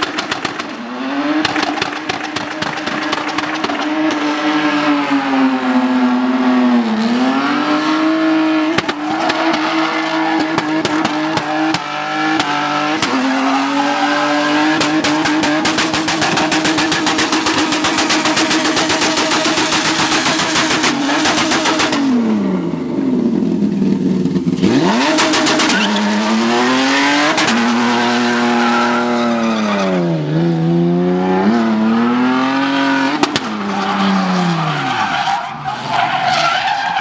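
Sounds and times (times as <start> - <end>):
car engine revving hard: 3.1 - 22.7, 24.3 - 33.6
tyres screeching: 24.8 - 30.1, 31.2 - 37.0.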